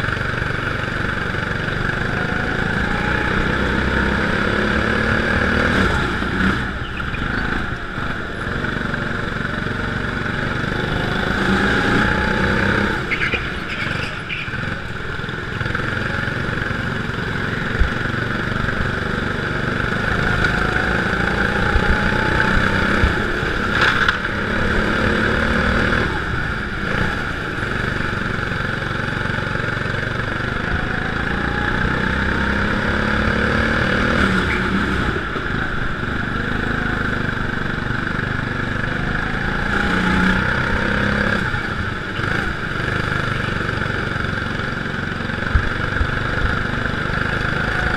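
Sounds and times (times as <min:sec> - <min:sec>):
go-kart engine accelerating: 0:00.0 - 0:47.9.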